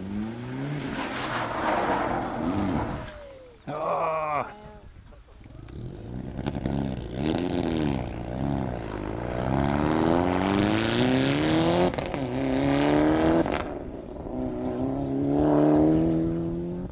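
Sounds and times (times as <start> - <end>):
car engine accelerating hard: 5.6 - 16.9.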